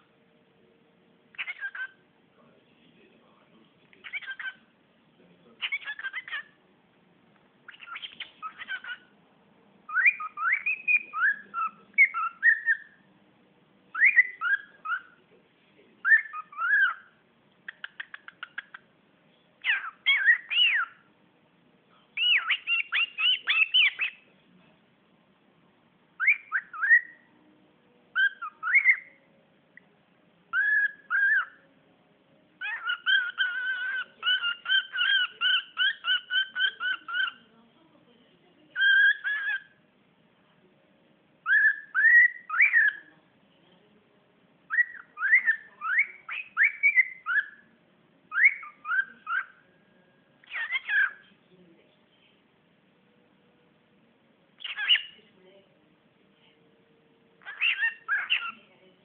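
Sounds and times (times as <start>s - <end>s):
cockatiel warbling: 1.3s - 2.0s, 4.0s - 4.7s, 5.6s - 6.6s, 7.7s - 9.1s, 9.9s - 13.0s, 13.9s - 15.2s, 16.0s - 18.8s, 19.6s - 21.1s, 22.2s - 24.2s, 26.2s - 27.3s, 28.1s - 29.2s, 30.5s - 31.6s, 32.6s - 37.5s, 38.8s - 39.8s, 41.4s - 43.1s, 44.7s - 47.7s, 48.3s - 49.6s, 50.4s - 51.2s, 54.6s - 55.2s, 57.4s - 58.6s
cockatiel whistling: 1.3s - 2.0s, 7.7s - 9.1s, 9.9s - 13.0s, 13.9s - 15.2s, 16.0s - 17.1s, 19.7s - 21.1s, 22.2s - 24.2s, 26.2s - 27.3s, 28.1s - 29.2s, 30.5s - 31.6s, 32.6s - 37.4s, 38.8s - 39.8s, 41.4s - 43.0s, 44.7s - 47.6s, 48.3s - 49.6s, 50.4s - 51.2s, 54.6s - 55.2s, 57.4s - 58.6s.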